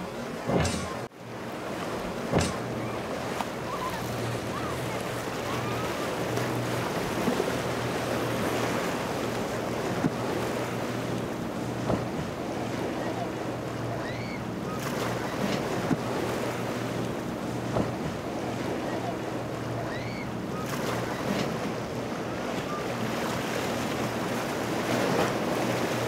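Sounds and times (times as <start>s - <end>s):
boat engines humming: 0.0s - 26.0s
surf and rough water: 0.0s - 26.0s
sharp knock: 0.5s - 1.0s, 2.3s - 2.7s.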